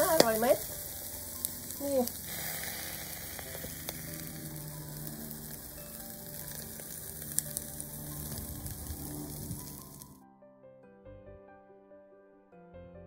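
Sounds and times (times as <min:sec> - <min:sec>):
ribs sizzling on a grill: 0:00.0 - 0:10.2
soft music: 0:00.0 - 0:13.0.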